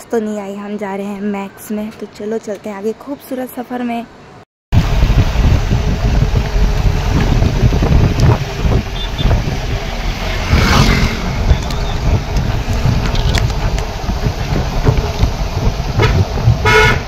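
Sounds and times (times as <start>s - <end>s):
moving vehicle rumble: 4.2s - 17.0s
wind buffeting microphone: 4.7s - 17.0s.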